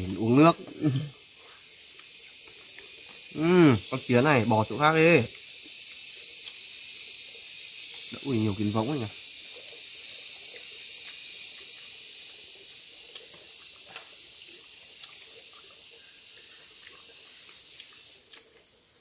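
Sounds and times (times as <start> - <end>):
high-pitched insect chorus: 0.0 - 19.0.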